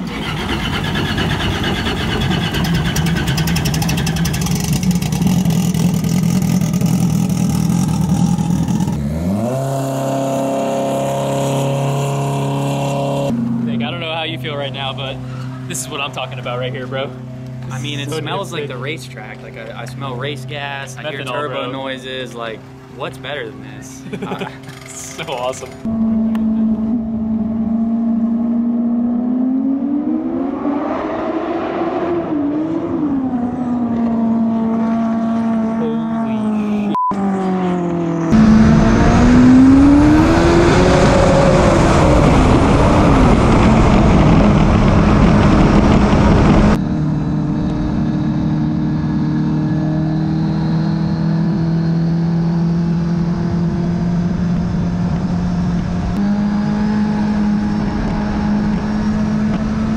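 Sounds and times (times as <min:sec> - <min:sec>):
jet ski engine running: 0:00.0 - 0:28.0, 0:51.6 - 0:59.9.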